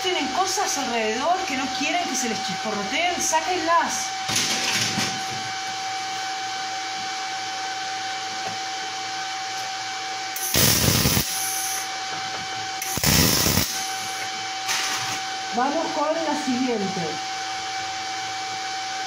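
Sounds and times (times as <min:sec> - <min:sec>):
welding arc crackling: 0:10.4 - 0:11.9, 0:12.8 - 0:14.3.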